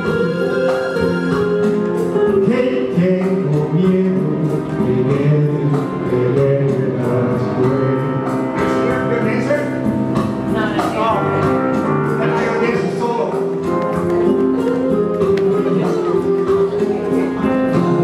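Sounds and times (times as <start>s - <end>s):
recorded backing track: 0.0s - 18.0s
man singing into microphone: 2.2s - 9.2s.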